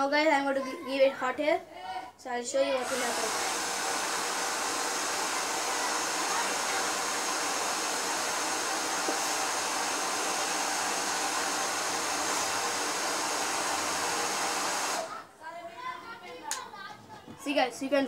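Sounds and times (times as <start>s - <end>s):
hair dryer blowing air: 2.7s - 15.2s.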